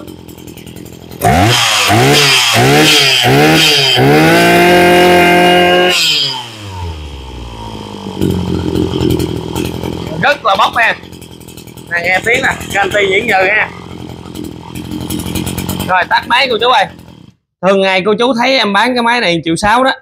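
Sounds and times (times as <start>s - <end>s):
brush cutter engine revving: 0.0s - 17.4s.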